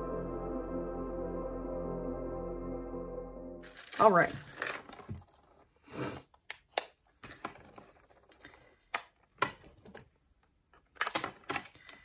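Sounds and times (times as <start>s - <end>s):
plastic discs clicking: 6.3s - 12.0s.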